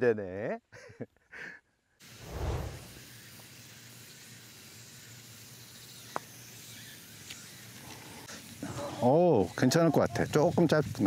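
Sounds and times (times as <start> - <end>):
steady outdoor hiss: 0.0 - 11.0
brief low rumble: 2.2 - 2.9.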